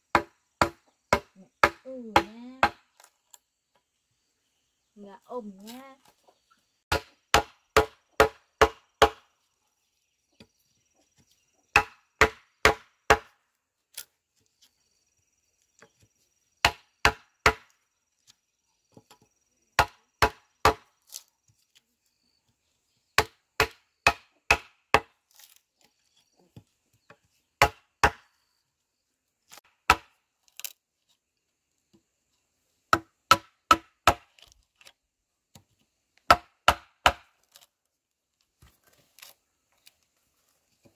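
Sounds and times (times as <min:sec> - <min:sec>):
blade chopping on wood: 0:06.9 - 0:09.3, 0:11.7 - 0:13.4, 0:19.8 - 0:20.9, 0:23.2 - 0:25.5, 0:27.6 - 0:28.3, 0:29.6 - 0:30.2, 0:32.9 - 0:34.5, 0:36.3 - 0:37.7.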